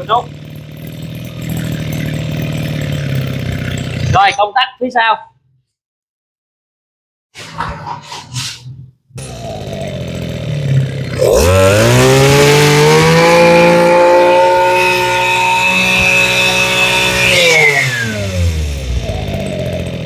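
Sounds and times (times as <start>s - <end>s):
brush cutter engine revving: 0.0s - 4.2s, 9.2s - 20.0s.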